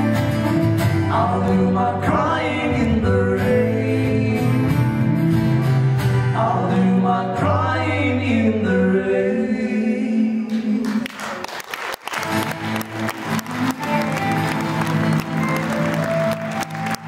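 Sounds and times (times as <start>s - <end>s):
band playing guitars bass drums: 0.0s - 7.0s, 12.2s - 17.0s
men singing in harmony: 1.1s - 5.0s
audience applause: 10.8s - 17.0s.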